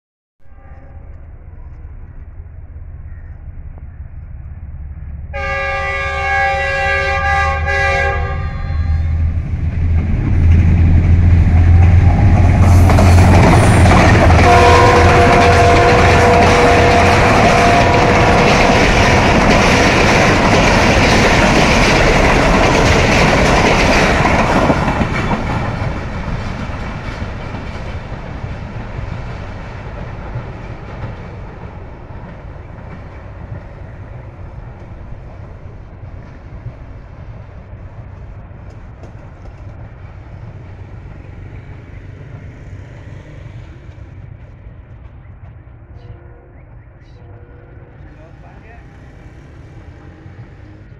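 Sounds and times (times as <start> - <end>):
train wheels clattering on rails: 9.6 - 46.0.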